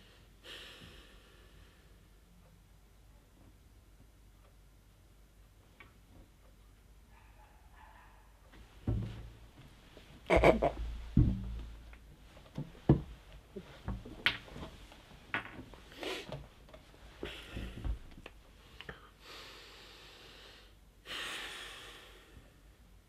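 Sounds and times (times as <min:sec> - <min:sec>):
knocks and rustles of movement: 0:08.5 - 0:18.6
man breathing and snorting: 0:15.9 - 0:16.4, 0:17.1 - 0:22.6.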